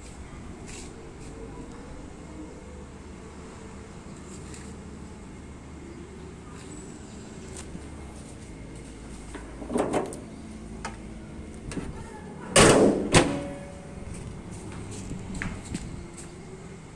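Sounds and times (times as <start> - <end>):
car body panel thudding shut: 12.6 - 13.6.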